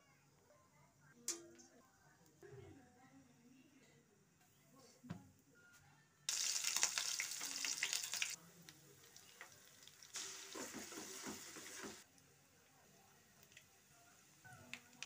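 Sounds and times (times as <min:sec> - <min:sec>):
hot oil sizzling: 0:06.3 - 0:12.0, 0:13.2 - 0:15.0
ginger and garlic sizzling in oil: 0:06.3 - 0:15.0.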